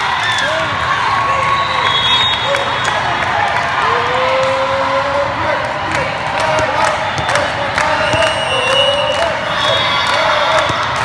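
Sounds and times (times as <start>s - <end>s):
crowd voices and cheering: 0.0s - 11.0s
volleyballs being hit: 6.3s - 11.0s
long whistle tones: 7.3s - 10.2s.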